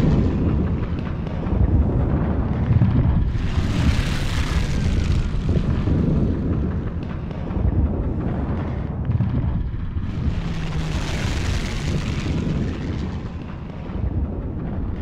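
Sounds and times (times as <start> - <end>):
low battle rumble: 0.0 - 15.0
rushing swell: 3.2 - 6.0, 9.9 - 13.6.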